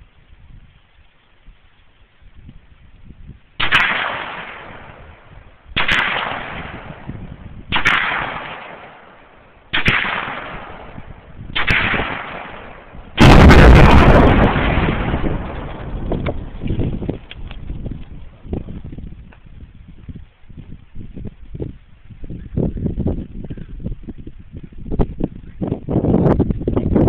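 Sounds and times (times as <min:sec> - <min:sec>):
loud blast: 0:03.6 - 0:05.0, 0:05.8 - 0:09.0, 0:09.7 - 0:17.2
echoing gunshots: 0:03.6 - 0:17.0.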